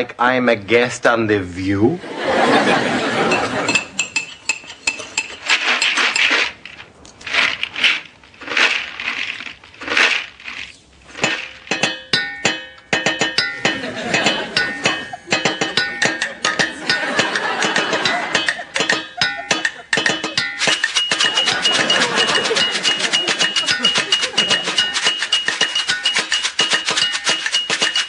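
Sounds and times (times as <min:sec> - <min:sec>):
cutlery and glass clinking: 0:02.9 - 0:06.6, 0:09.4 - 0:28.0
pots pans and dishes clattering: 0:11.1 - 0:28.0
music with sharp struck notes: 0:11.2 - 0:28.0.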